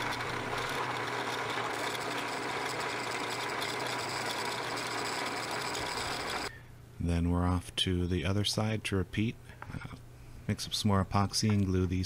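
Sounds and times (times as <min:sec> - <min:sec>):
drill bit drilling through steel: 0:00.0 - 0:06.5
drill press humming: 0:00.0 - 0:06.5.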